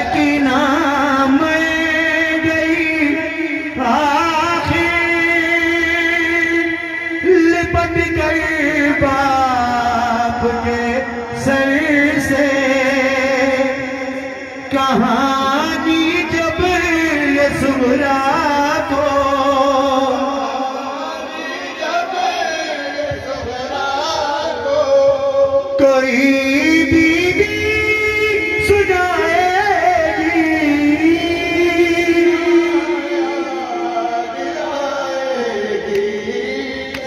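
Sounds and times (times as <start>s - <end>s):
men singing a lament: 0.0s - 37.0s.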